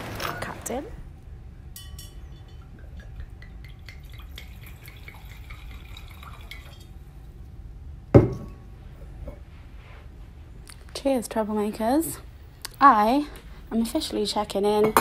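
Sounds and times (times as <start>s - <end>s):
drips and clinks: 1.8s - 6.9s
liquid pouring into glass: 2.6s - 6.9s.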